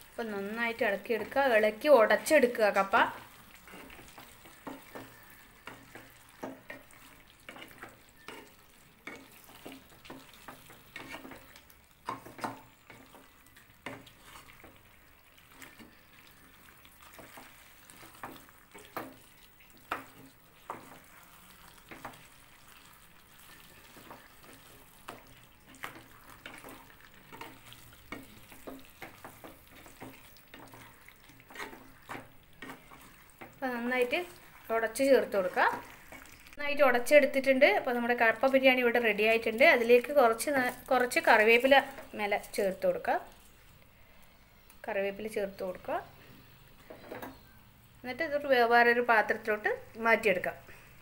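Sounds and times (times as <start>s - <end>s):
faint sizzling: 0.0s - 51.0s
wooden spatula scraping pan: 1.1s - 14.8s, 15.4s - 36.4s.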